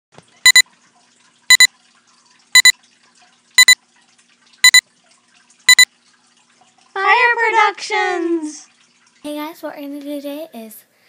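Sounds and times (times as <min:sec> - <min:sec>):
high electronic double beep: 0:04.6 - 0:04.8.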